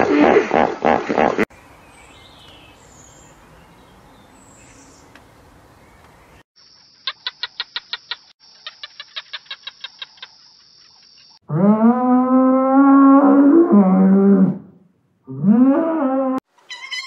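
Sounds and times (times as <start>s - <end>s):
sharp repeated clucking calls: 6.8s - 11.4s.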